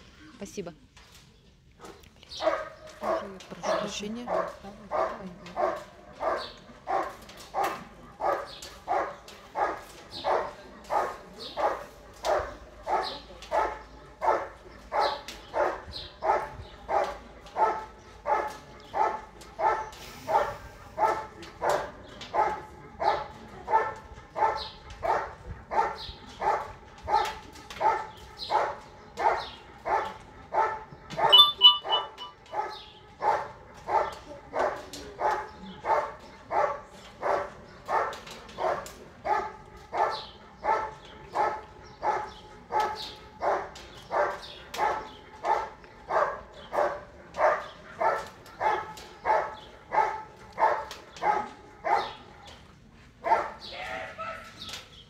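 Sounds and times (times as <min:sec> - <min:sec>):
dog barking: 0:01.8 - 0:52.2, 0:53.2 - 0:54.6
high-pitched tone: 0:31.3 - 0:32.4.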